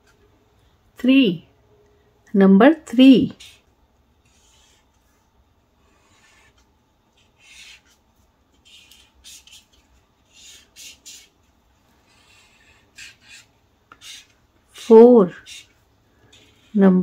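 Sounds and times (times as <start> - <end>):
marker rubbing on paper: 3.2 - 5.2, 5.8 - 11.4, 12.0 - 17.0.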